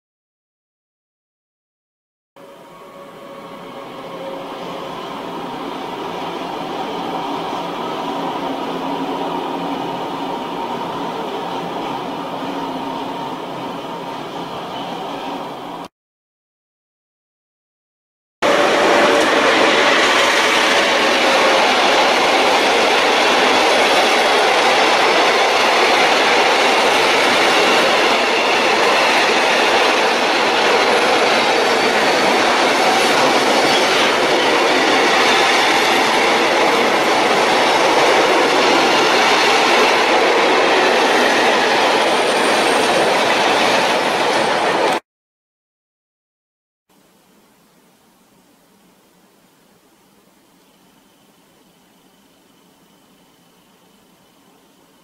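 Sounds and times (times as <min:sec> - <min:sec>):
freight train passing: 0:02.4 - 0:15.9, 0:18.4 - 0:45.0.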